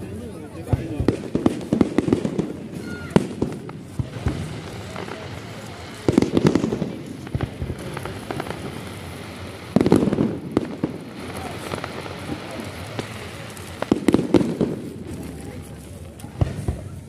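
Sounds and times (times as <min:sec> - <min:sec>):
fireworks crackling bangs: 0:00.0 - 0:17.0
firework pops: 0:00.6 - 0:17.0.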